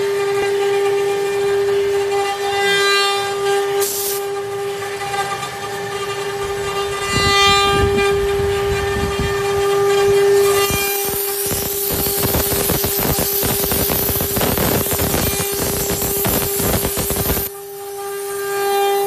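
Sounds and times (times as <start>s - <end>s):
router spindles whining: 0.0s - 19.0s
rough low cutting noise: 4.2s - 17.9s.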